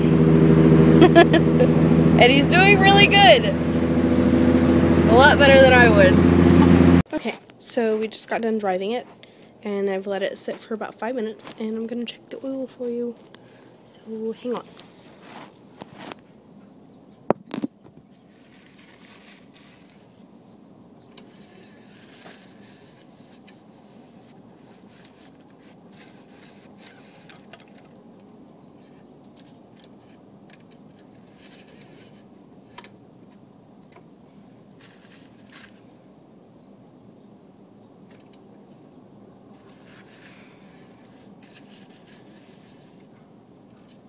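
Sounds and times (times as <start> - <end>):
muffled rubbing on microphone: 14.4 - 16.2, 18.2 - 20.2.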